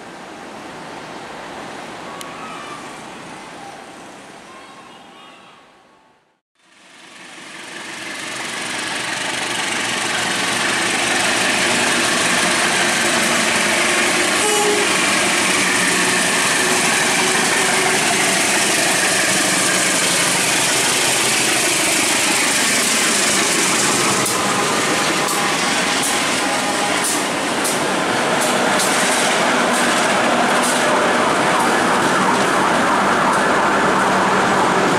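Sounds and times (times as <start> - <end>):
locomotive engine running: 6.7 - 34.9
train wheels rumbling on rails: 6.7 - 34.9
sharp clacks: 27.0 - 30.9.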